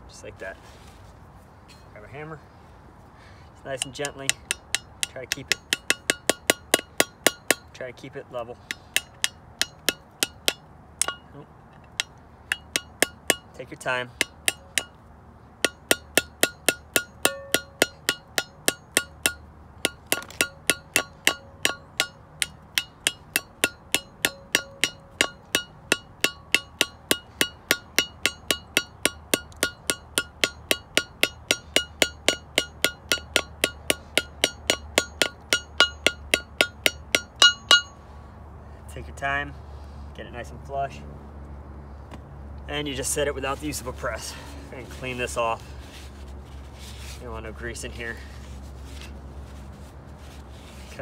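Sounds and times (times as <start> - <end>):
hammer tapping on metal: 3.8 - 7.8, 8.6 - 15.0, 15.6 - 38.0.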